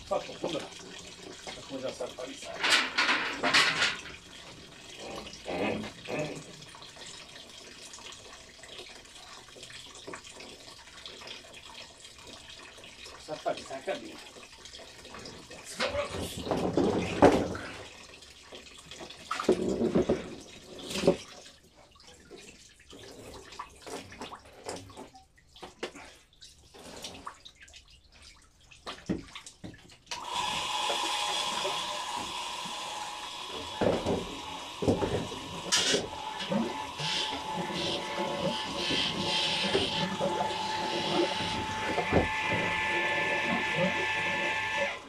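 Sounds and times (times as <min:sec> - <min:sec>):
wine gushing from press: 0:30.2 - 0:44.6.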